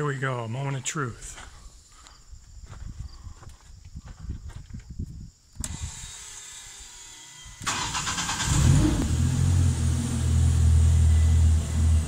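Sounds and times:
engine cranking and idling: 7.6 - 12.0.

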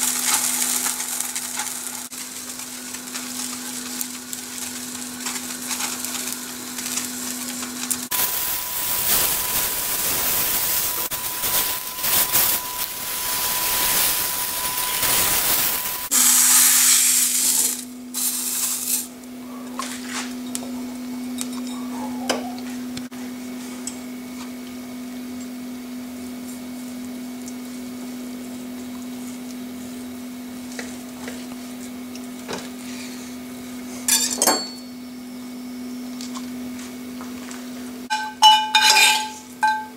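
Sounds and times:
fish sizzling in hot oil: 0.0 - 19.2
low hum: 7.8 - 16.4
knocks and clinks of handling: 38.1 - 39.9.

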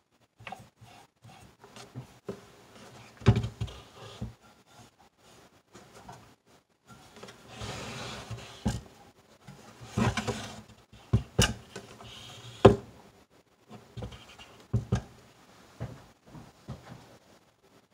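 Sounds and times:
projector scraping on wooden table: 6.9 - 8.8, 9.8 - 10.6.

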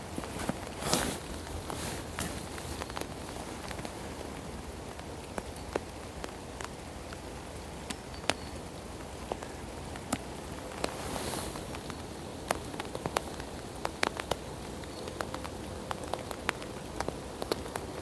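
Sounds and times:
low rain hiss: 0.0 - 18.0
raindrops tapping: 0.0 - 18.0.

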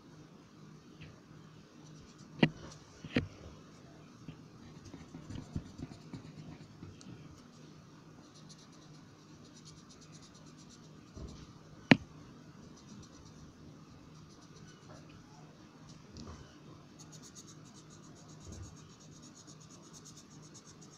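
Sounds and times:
colored pencil scratching on paper: 4.6 - 7.6, 8.2 - 11.5, 12.6 - 13.5, 14.1 - 15.1, 17.0 - 20.9.

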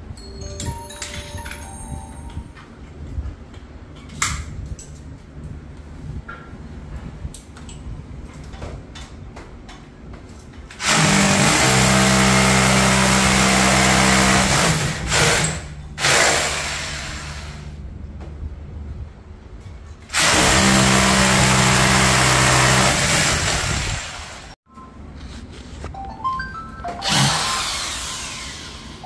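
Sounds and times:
power drill running: 10.8 - 17.7, 20.1 - 24.5, 27.0 - 29.0.

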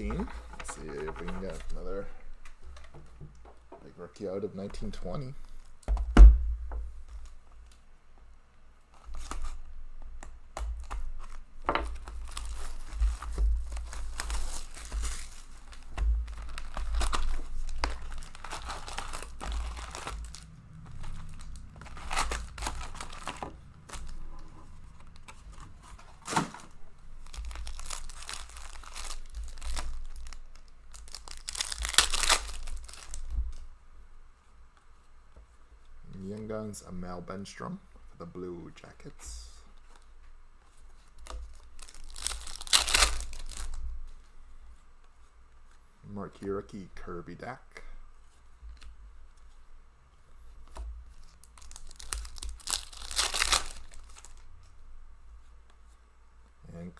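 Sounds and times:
foil wrappers crinkling and tearing: 10.8 - 33.7, 41.0 - 44.2, 51.1 - 54.5.

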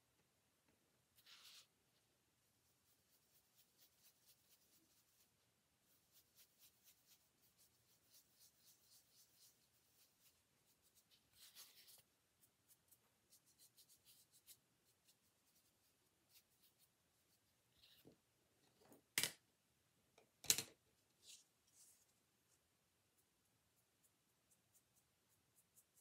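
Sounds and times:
brush rubbing strokes: 1.2 - 18.1.

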